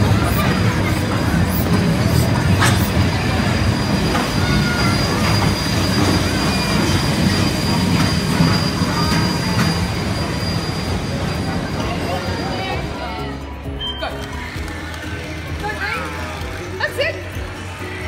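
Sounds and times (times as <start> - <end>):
train wheels rumbling on rails: 0.0 - 13.1
high wheel squeals: 0.0 - 14.6.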